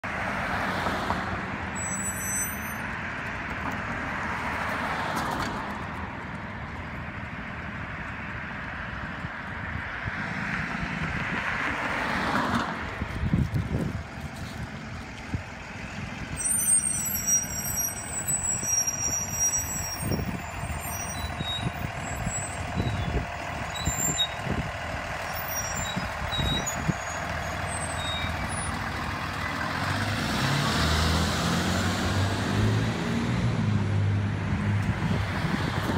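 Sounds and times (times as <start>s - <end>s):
vehicle engine: 0.0s - 35.9s
bus engine running: 12.6s - 35.9s.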